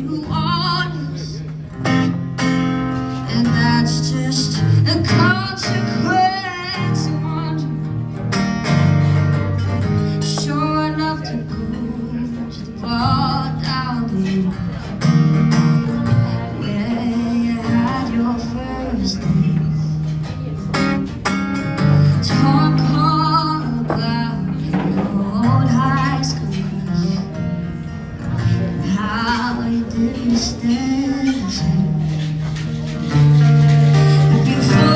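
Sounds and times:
woman singing: 0.0s - 1.5s, 3.2s - 8.0s, 10.0s - 14.9s, 16.3s - 20.0s, 22.0s - 27.6s, 28.4s - 32.5s, 34.1s - 34.9s
acoustic guitar chords: 0.0s - 34.9s.

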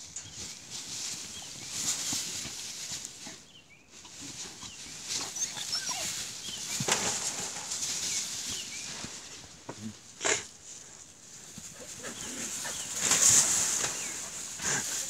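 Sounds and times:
dogs shuffling through straw: 0.0s - 15.0s
puppies squeaking and whimpering: 4.6s - 6.9s.

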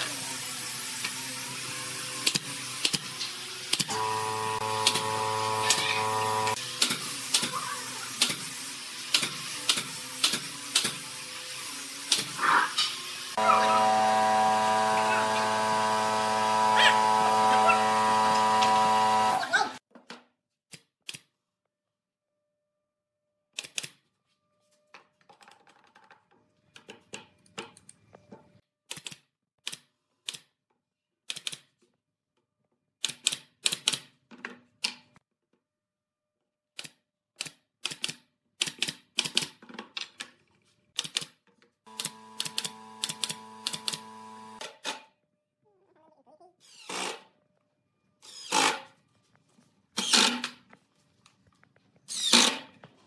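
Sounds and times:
power tool motor whining: 3.8s - 6.6s, 13.4s - 19.8s, 41.9s - 44.6s
nail gun firing: 4.7s - 6.0s.

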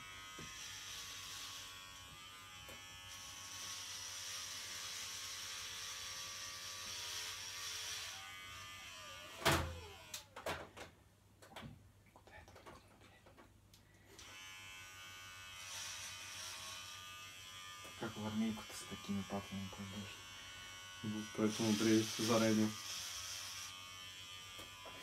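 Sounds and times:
electric hair clippers buzzing: 0.0s - 10.3s, 14.2s - 25.0s.

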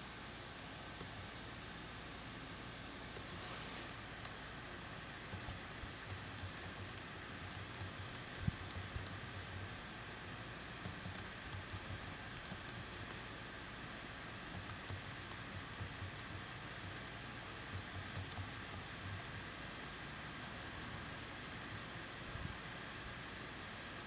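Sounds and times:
typing on computer keyboard: 5.3s - 9.6s, 10.8s - 13.4s, 14.5s - 16.9s, 17.6s - 19.4s.

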